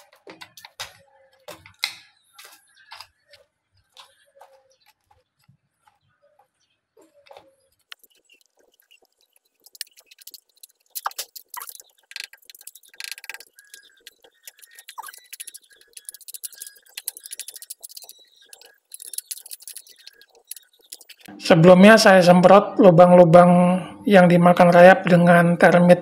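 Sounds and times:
screwdriver scraping rotten wood: 7.2 - 21.3.

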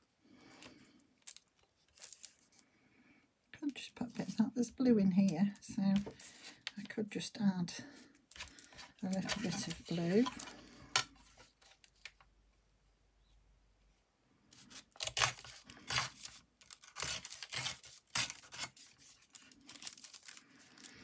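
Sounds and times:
paper tearing: 14.6 - 20.9.

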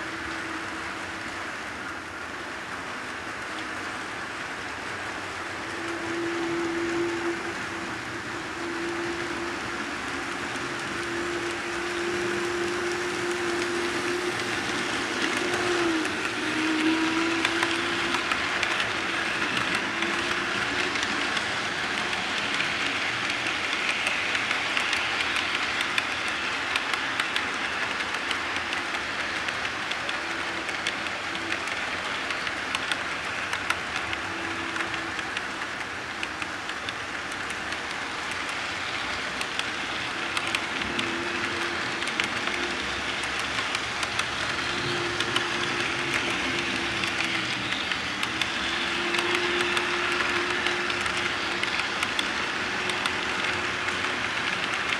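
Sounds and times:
model train wheels rolling: 0.0 - 54.9
locomotive motor hum: 5.2 - 54.9
clicks at rail joints: 14.3 - 54.9.

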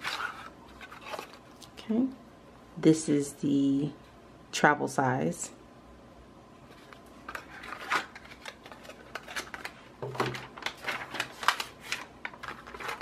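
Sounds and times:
hands rummaging through packets: 0.0 - 1.6, 6.7 - 13.0.

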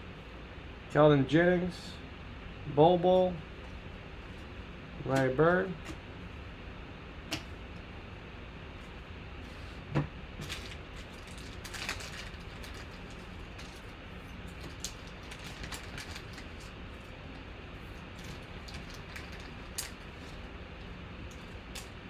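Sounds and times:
steady low hum: 0.0 - 22.0
plastic sleeves crinkling: 10.4 - 17.1, 17.8 - 20.5.

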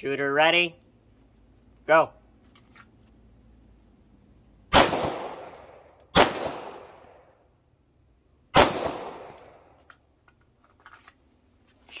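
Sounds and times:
pistol shots: 4.7 - 7.2, 8.5 - 9.7.

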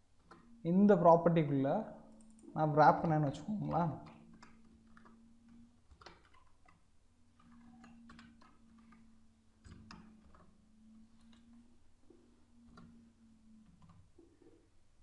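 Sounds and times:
faint steady hum: 0.0 - 15.0
computer keyboard keystrokes: 3.4 - 5.2, 5.9 - 6.8, 7.4 - 10.5.

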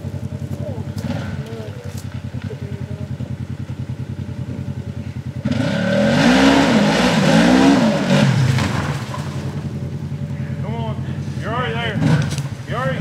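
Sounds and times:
off-road vehicle engine revving: 0.0 - 13.0.

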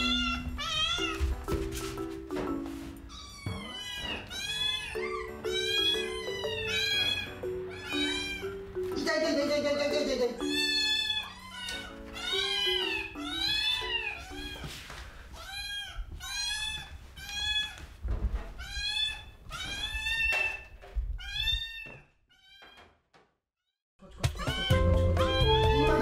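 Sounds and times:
kittens meowing: 0.0 - 1.2, 3.1 - 8.6, 10.4 - 14.6, 15.3 - 17.8, 18.6 - 22.8.

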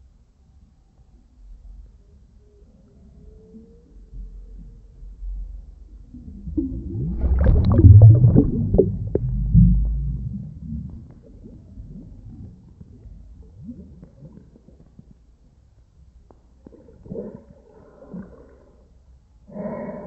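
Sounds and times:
faint low rumble: 0.0 - 20.0
underwater bubbling and churning: 5.5 - 19.1.

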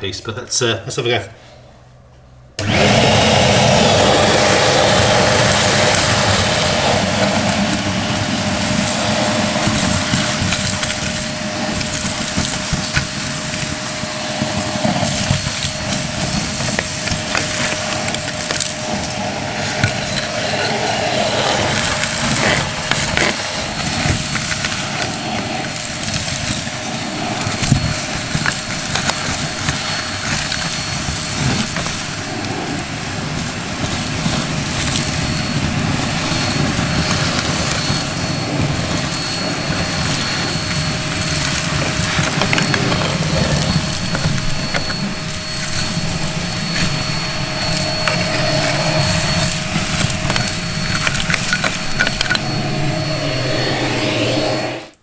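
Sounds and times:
vacuum cleaner motor drone: 2.6 - 55.0
debris crackling and rattling in hose: 3.1 - 52.5.

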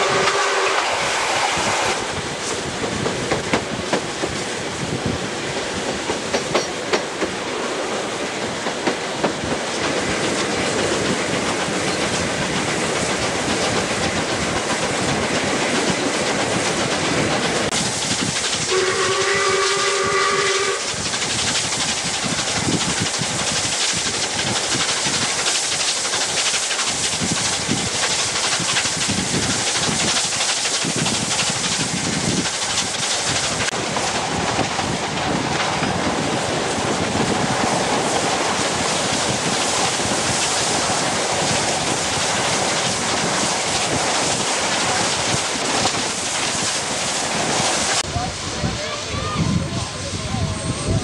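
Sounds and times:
steam locomotive whistle: 0.0 - 2.1, 18.7 - 21.0
steam train running: 0.0 - 51.0.

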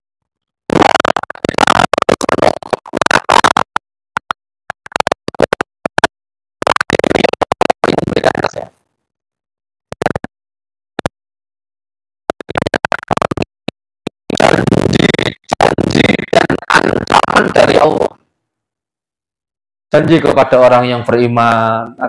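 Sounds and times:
stuttering voice fragments: 0.7 - 3.8, 4.8 - 8.8, 12.3 - 13.5, 14.3 - 18.2, 19.9 - 22.0.

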